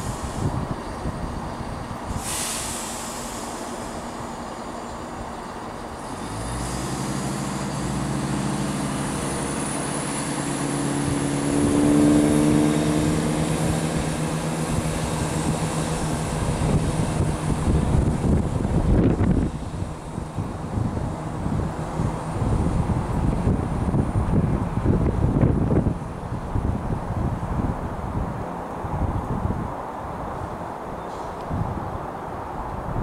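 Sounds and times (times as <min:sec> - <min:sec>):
air hiss: 0:00.0 - 0:00.6, 0:02.1 - 0:04.4
train diesel engines revving: 0:00.0 - 0:32.9.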